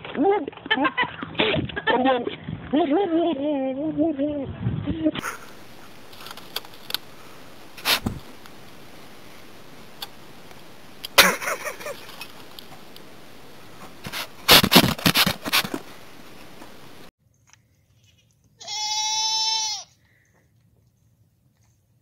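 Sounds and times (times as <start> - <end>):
rustling: 4.4 - 18.6
background hiss: 5.2 - 21.2
goat bleating: 18.6 - 20.0.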